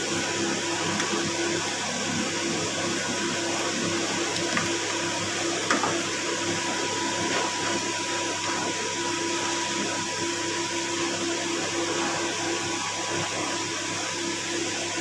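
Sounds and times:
whirring with high whine: 0.0 - 15.0.

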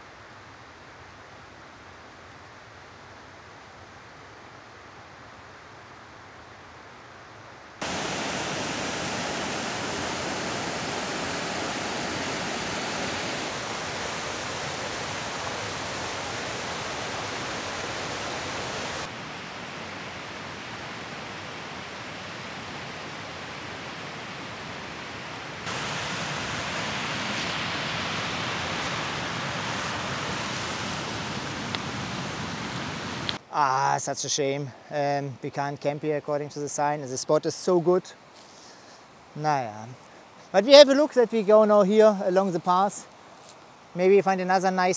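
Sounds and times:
river rushing over rapids: 7.8 - 33.5.

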